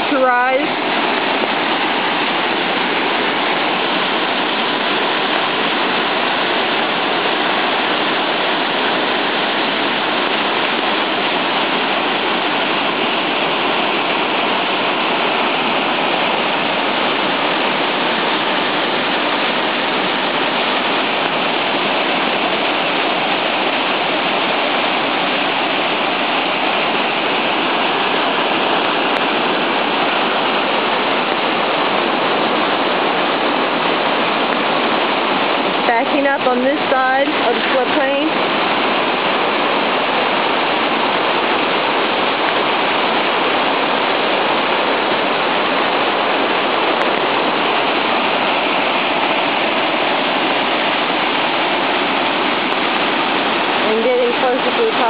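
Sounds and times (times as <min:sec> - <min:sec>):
floodwater rushing: 0:00.0 - 0:55.0.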